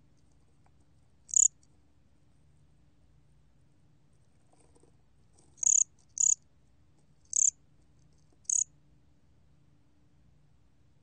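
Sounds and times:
cricket chirping: 1.3s - 1.6s, 5.6s - 6.4s, 7.3s - 7.6s, 8.4s - 8.7s.

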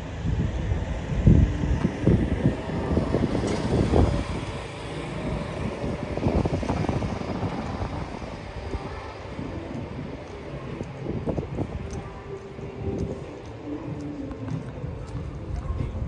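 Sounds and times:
city street ambience: 0.0s - 16.0s
wind buffeting microphone: 0.0s - 16.0s.

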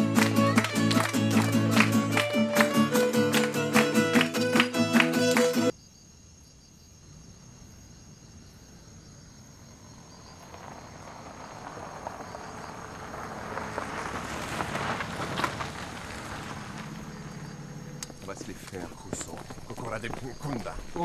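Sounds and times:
gravel crackling under tyres: 9.3s - 21.0s
car engine approaching: 9.7s - 21.0s.

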